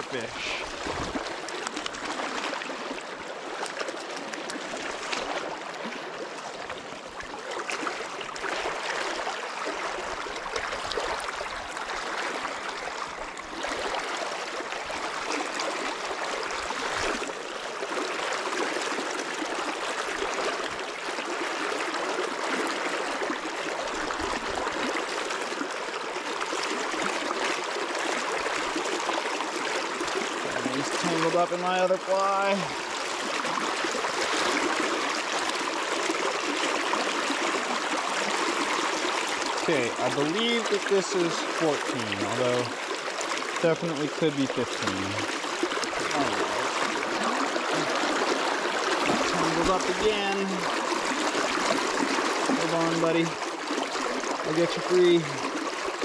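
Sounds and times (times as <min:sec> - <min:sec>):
river water rushing over rocks: 0:32.1 - 0:44.1, 0:44.8 - 0:56.0.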